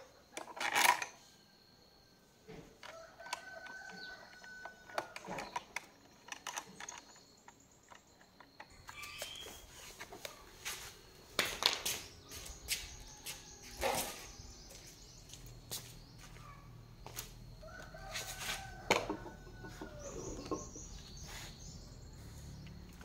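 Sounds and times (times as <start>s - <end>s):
metal parts clicking and tapping: 2.8s - 9.4s
birds chirping: 5.3s - 23.0s.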